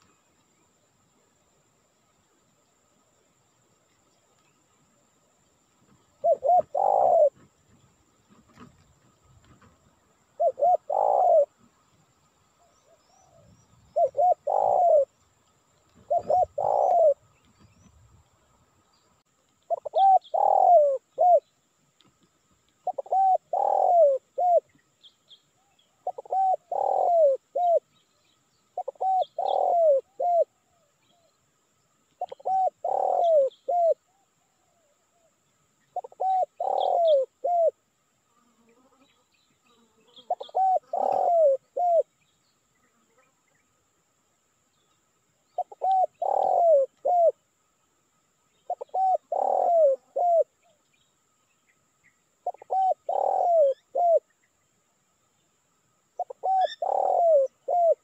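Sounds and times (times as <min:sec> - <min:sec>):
small birds chirping: 0:03.7 - 0:37.8, 0:38.6 - 0:58.0
dove cooing: 0:06.2 - 0:07.5, 0:10.4 - 0:11.7, 0:12.8 - 0:15.2, 0:15.9 - 0:17.3, 0:19.7 - 0:21.5, 0:22.8 - 0:24.8, 0:26.0 - 0:27.8, 0:28.8 - 0:31.3, 0:32.2 - 0:34.9, 0:36.0 - 0:37.8, 0:40.1 - 0:42.1, 0:45.6 - 0:47.4, 0:48.7 - 0:50.6, 0:52.4 - 0:54.3, 0:56.2 - 0:58.0.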